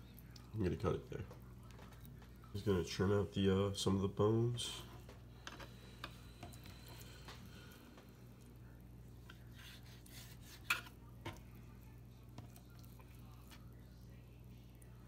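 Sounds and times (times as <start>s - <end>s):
knife scraping on cutting board: 9.3s - 11.0s.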